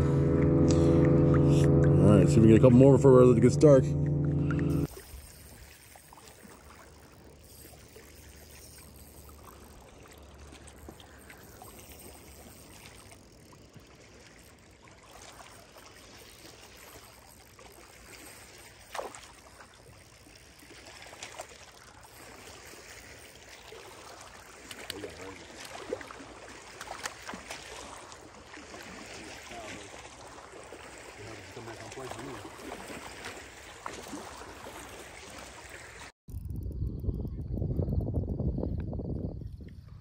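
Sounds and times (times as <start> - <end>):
lake water lapping: 0.0 - 36.2.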